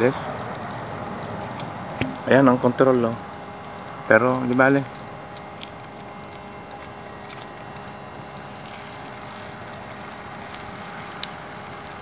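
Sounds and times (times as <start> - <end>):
gas burner running: 0.0 - 12.0
omelet frying crackles: 0.0 - 12.0.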